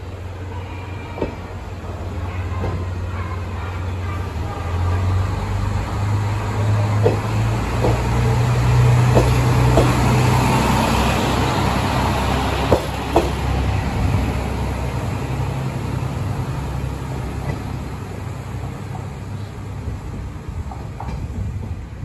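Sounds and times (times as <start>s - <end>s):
diesel train engine humming: 0.0s - 22.0s
wheels clicking over rail joints: 6.6s - 10.3s, 11.1s - 14.2s, 20.5s - 21.8s.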